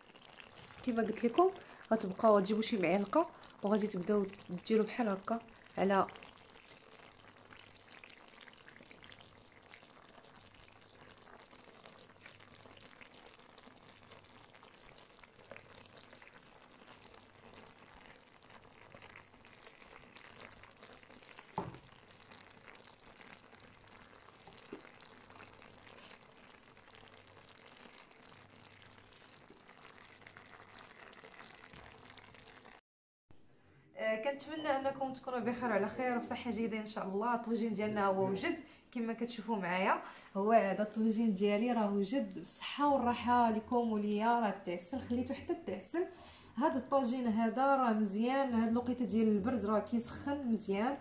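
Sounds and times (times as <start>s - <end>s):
food sizzling and bubbling in pot: 0.0s - 32.8s.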